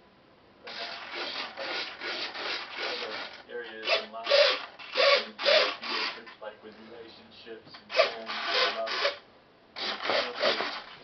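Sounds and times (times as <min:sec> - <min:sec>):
servos whirring: 0:00.7 - 0:06.4, 0:07.8 - 0:09.2, 0:09.8 - 0:11.0.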